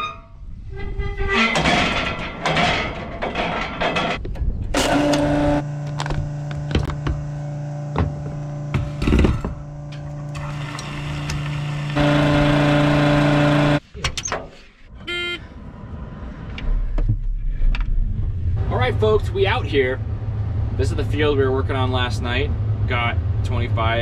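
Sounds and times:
fuel pump humming: 4.8s - 13.8s
short electronic beep: 15.1s - 15.4s.

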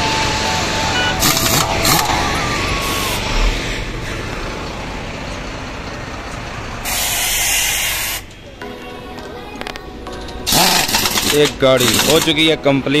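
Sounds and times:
heavy truck engine running: 0.0s - 13.0s
compressed air hiss: 6.8s - 8.2s.

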